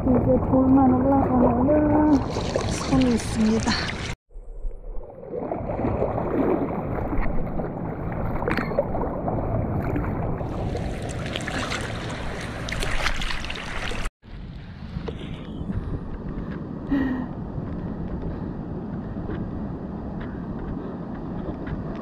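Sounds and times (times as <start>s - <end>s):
water sloshing and lapping: 0.0s - 4.2s, 5.0s - 14.1s.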